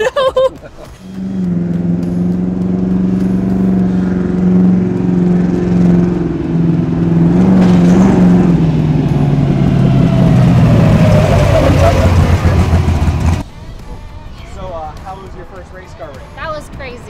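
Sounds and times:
race buggy engine revving: 0.8 - 13.4.

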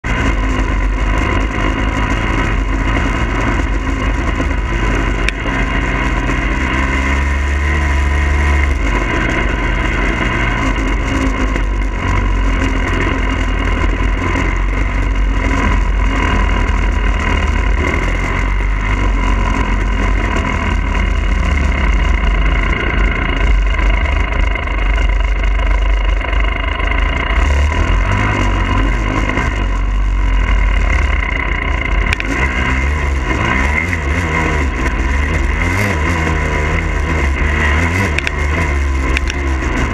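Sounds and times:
two-stroke dirt bike engine: 0.0 - 39.9.

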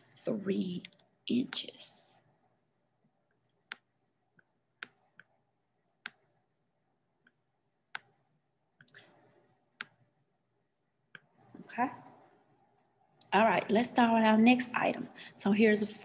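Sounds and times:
computer mouse clicks: 3.6 - 5.4, 6.0 - 6.4, 7.2 - 8.2, 9.8 - 10.0.

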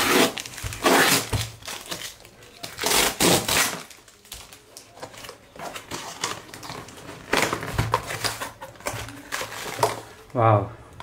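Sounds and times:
packaging rustling and crinkling: 0.0 - 10.4.

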